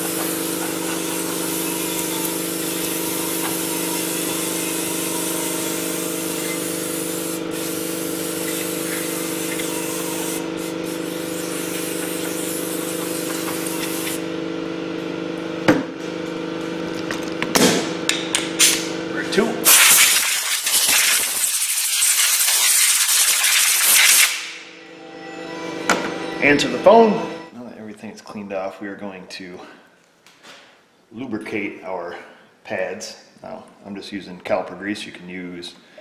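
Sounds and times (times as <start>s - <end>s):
aerosol spray and air hiss: 0.0s - 14.2s, 19.7s - 24.4s.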